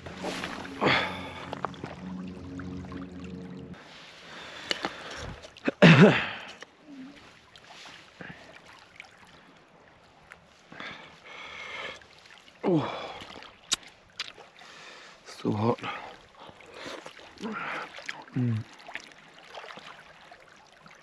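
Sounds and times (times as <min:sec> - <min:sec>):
man sighing ahh: 0:00.2 - 0:01.6, 0:17.4 - 0:18.7.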